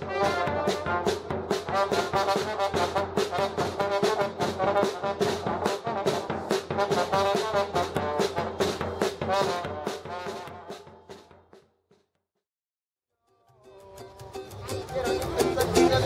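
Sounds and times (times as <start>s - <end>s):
trombone and trumpet melody: 0.0s - 10.9s
bass drum beat: 0.0s - 12.2s.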